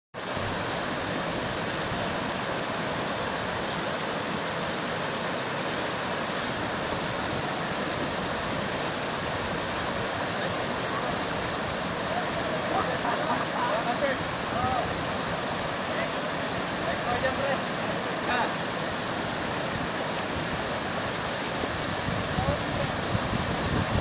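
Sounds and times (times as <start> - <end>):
water rushing over rocks: 0.2 - 24.0.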